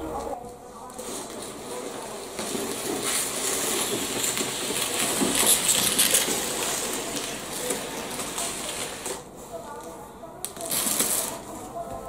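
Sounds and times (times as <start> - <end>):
cardboard box rustling scrape: 1.0 - 9.2.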